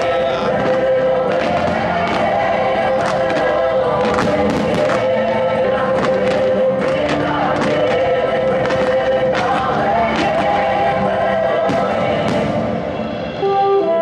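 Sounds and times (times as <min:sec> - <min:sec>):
fireworks popping and cracking: 0:00.0 - 0:05.1, 0:05.9 - 0:10.7, 0:11.6 - 0:12.7
choir singing over chords: 0:00.0 - 0:14.0.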